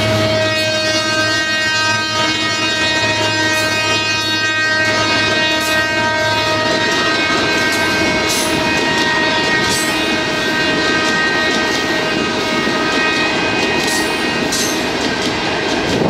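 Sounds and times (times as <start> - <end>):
train wheels rumbling on rail: 0.0 - 16.0
wheels clacking over rail joints: 4.8 - 16.0.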